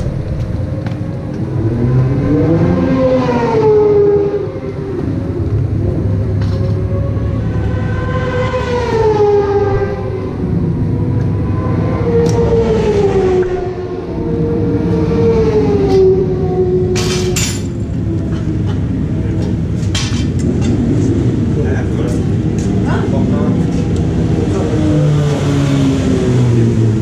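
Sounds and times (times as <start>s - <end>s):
motorcycle engines revving high: 0.0s - 27.0s
low rumble: 4.3s - 24.6s.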